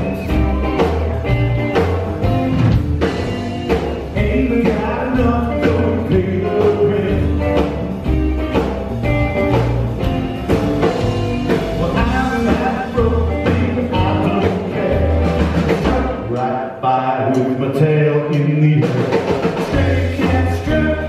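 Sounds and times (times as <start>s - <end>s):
drum kit beat: 0.0s - 16.6s, 17.2s - 21.0s
electric guitar: 0.0s - 21.0s
upright bass line: 0.0s - 21.0s.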